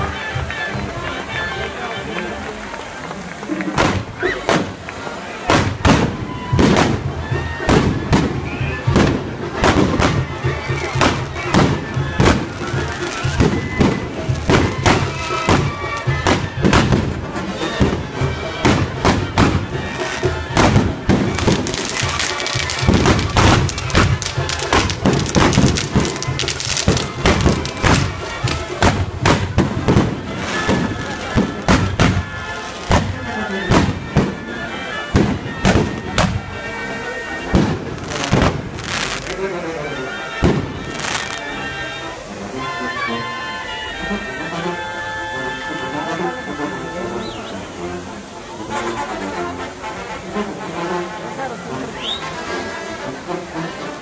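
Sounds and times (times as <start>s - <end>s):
music playing: 0.0s - 54.0s
fireworks banging: 3.5s - 41.8s.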